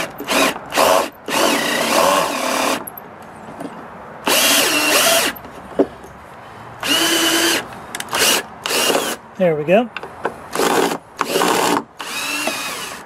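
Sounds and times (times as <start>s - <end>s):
power drill running: 0.0s - 2.8s, 4.3s - 5.4s, 6.8s - 9.2s, 10.6s - 13.0s.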